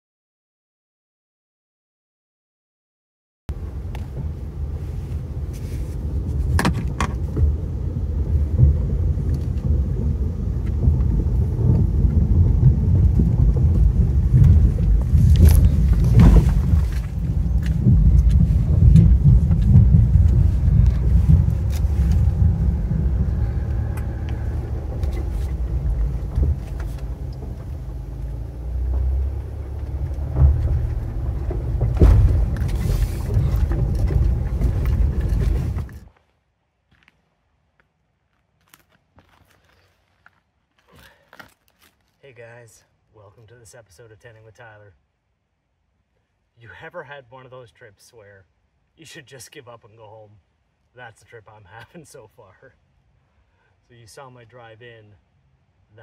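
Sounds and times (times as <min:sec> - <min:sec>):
car driving rumble: 0:03.5 - 0:36.2
knocks and clunks from bumps: 0:06.2 - 0:36.1.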